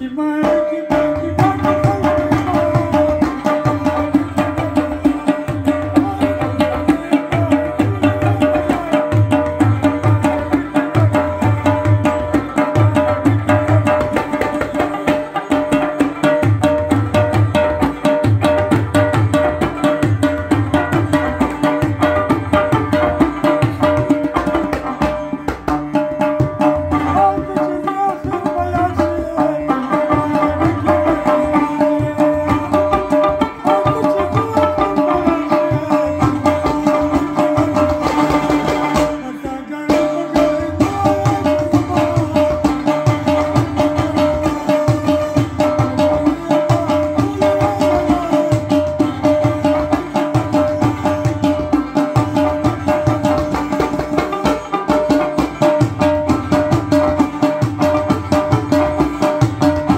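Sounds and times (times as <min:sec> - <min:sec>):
hand-struck clay pot drum: 0:00.4 - 0:39.2, 0:39.9 - 0:59.9
wavering melody: 0:21.5 - 0:39.5.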